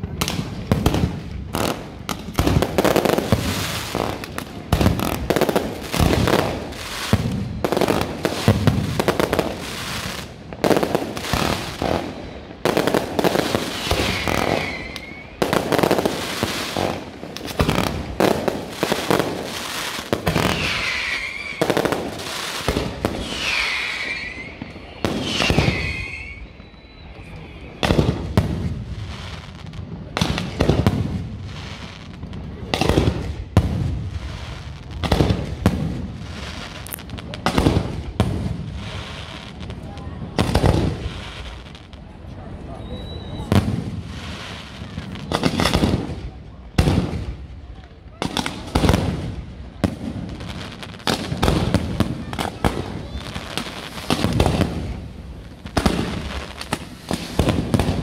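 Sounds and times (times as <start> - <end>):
fireworks bangs and booms: 0.0 - 58.0
falling firework whistles: 5.3 - 10.3, 11.1 - 17.9, 18.8 - 29.4, 42.7 - 45.8, 51.4 - 55.0.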